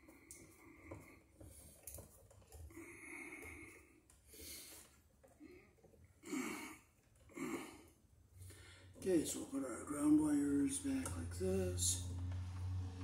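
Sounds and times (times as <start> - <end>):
wires clicking and scraping: 0.0 - 13.0
man breathing: 2.7 - 9.0.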